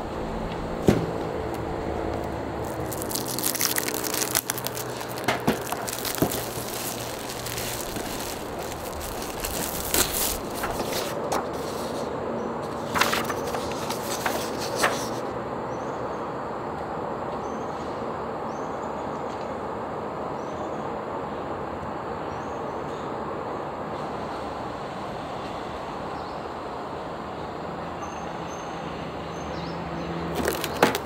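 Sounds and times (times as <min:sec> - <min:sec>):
steady background hum: 0:00.0 - 0:28.0
plastic shrink wrap crinkling: 0:01.5 - 0:12.1, 0:12.8 - 0:15.2, 0:30.4 - 0:31.0
cardboard box handled: 0:02.1 - 0:12.0, 0:30.4 - 0:31.0.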